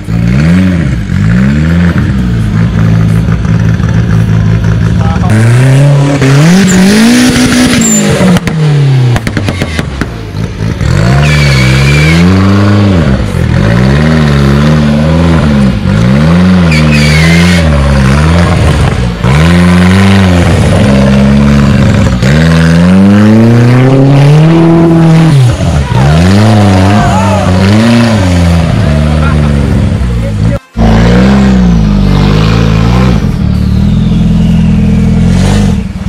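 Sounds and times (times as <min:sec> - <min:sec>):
off-road engine revving: 0:00.0 - 0:36.0
short high squeals: 0:11.1 - 0:12.4, 0:16.7 - 0:17.6.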